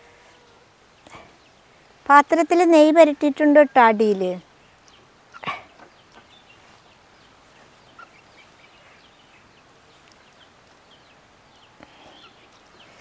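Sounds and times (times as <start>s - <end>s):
faint bird chirps: 4.6s - 13.0s.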